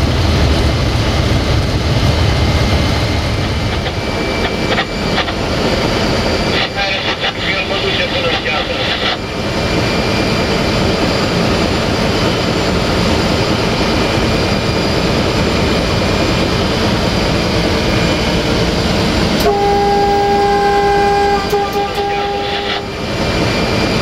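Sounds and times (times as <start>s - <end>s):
locomotive diesel engine din: 16.0s - 24.0s
locomotive horn: 19.4s - 23.0s.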